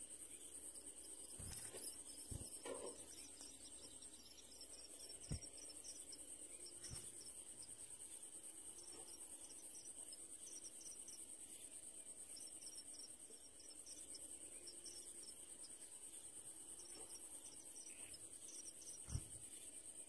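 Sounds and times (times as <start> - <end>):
faint chirps: 0.0 - 20.0
insects trilling: 0.0 - 20.0.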